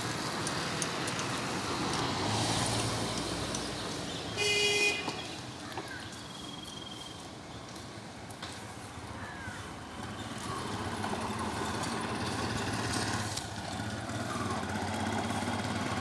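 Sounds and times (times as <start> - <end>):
motorcycle passing: 0.0 - 6.1, 8.8 - 16.0
street traffic: 0.0 - 16.0
vehicle horn honk: 4.4 - 5.3.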